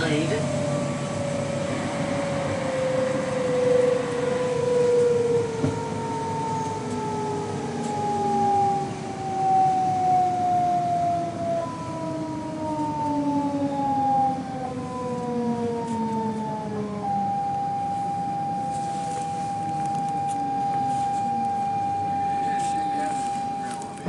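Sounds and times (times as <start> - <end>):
train motors whining: 14.6 - 24.0.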